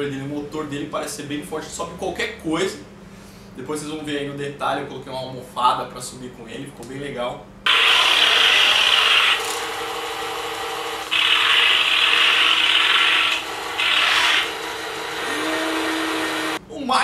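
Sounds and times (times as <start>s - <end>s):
toy tank electric drive whirring: 7.7s - 16.6s.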